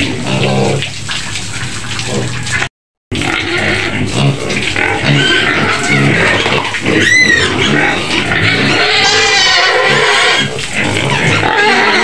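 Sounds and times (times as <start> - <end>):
pigs squealing and grunting: 0.0 - 12.0
sharp high pig squeal: 3.3 - 12.0.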